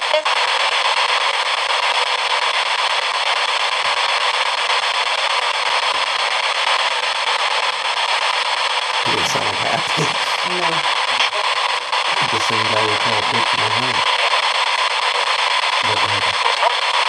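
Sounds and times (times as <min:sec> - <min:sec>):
radio static hiss: 0:00.0 - 0:17.0
voice-like sound: 0:09.1 - 0:11.6, 0:12.2 - 0:14.0, 0:15.2 - 0:16.8.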